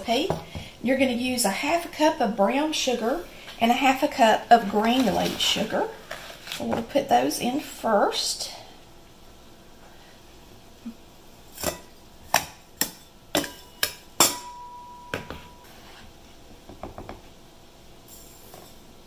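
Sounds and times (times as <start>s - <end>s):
funnel ringing: 13.4s - 15.6s.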